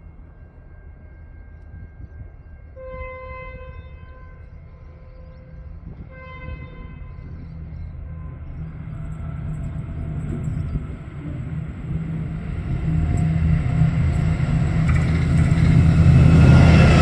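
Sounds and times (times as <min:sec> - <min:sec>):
train rumble: 0:00.0 - 0:17.0
locomotive horn blasts: 0:02.8 - 0:04.5, 0:06.0 - 0:07.2.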